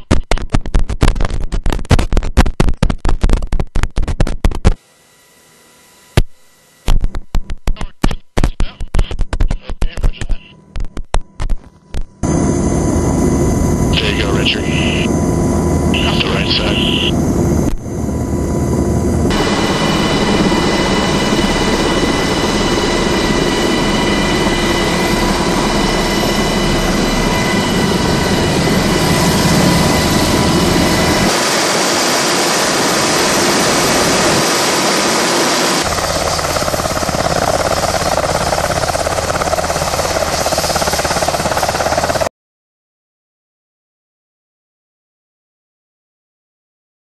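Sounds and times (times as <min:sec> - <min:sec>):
helicopter rotor noise: 0:03.3 - 0:42.3
helicopter engine whine: 0:04.8 - 0:07.7, 0:10.2 - 0:42.3.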